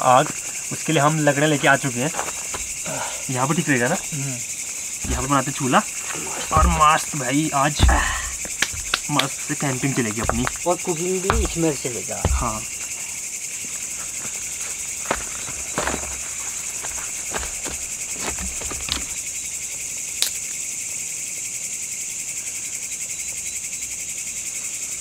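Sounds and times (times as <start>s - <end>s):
night insects chirring: 0.0s - 25.0s
sticks clicking and snapping: 8.0s - 10.6s.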